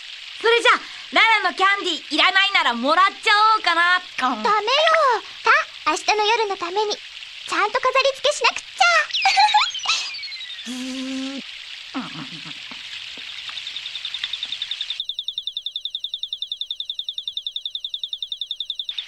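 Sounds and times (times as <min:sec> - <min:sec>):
fountain water falling: 0:00.0 - 0:15.0
cartoon character voice sounds: 0:07.5 - 0:11.4
fast warbling magic effect: 0:08.8 - 0:11.4
faint steady tone: 0:13.5 - 0:19.0.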